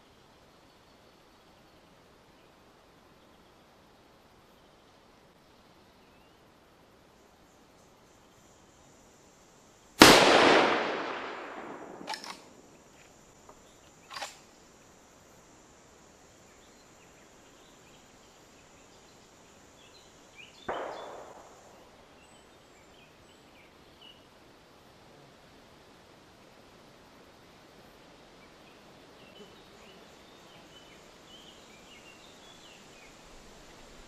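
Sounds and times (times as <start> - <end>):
rifle shot echoing: 10.0 - 12.6, 20.7 - 22.0
rifle lever metallic clacks: 12.0 - 12.5.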